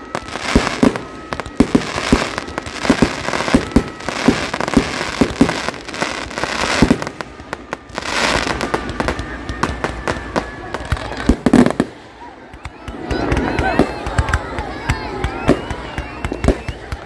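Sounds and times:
firework crackling: 0.0s - 17.0s.

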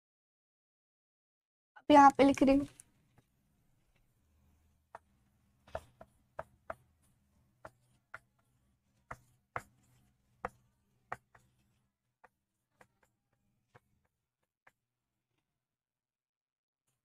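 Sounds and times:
marker pen on whiteboard: 2.4s - 15.5s.

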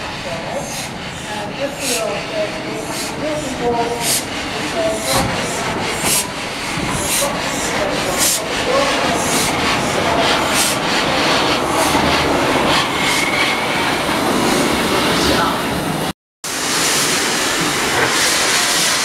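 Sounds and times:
steam locomotive exhaust puffs: 0.0s - 14.0s.

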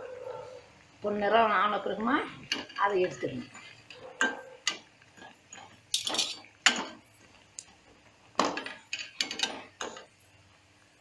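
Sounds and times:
metal ladle clinking and scraping: 3.5s - 6.9s.

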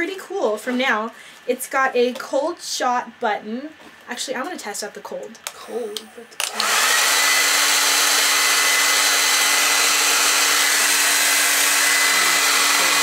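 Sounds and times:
hair dryer blowing: 6.4s - 13.0s.

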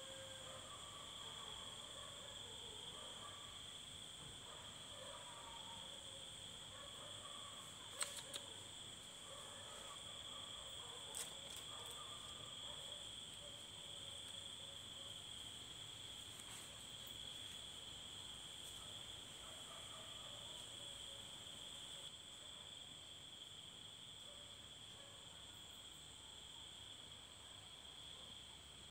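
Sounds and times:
crickets trilling: 0.0s - 28.9s
sharp clicks: 7.9s - 8.6s.

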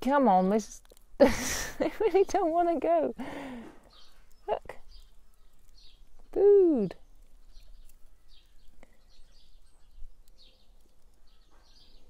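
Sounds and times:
outdoor hiss: 0.0s - 5.2s
small birds chirping: 0.0s - 12.0s.

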